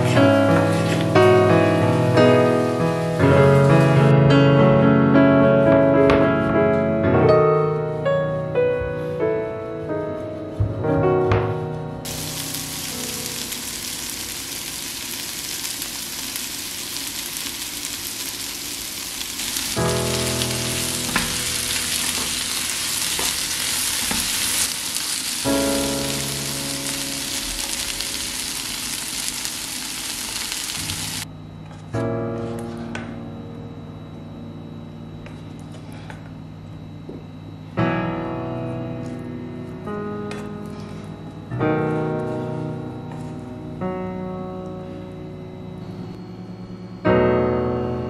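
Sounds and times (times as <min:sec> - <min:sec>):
vegetables sizzling in a frying pan: 0:00.0 - 0:04.1, 0:12.1 - 0:31.3.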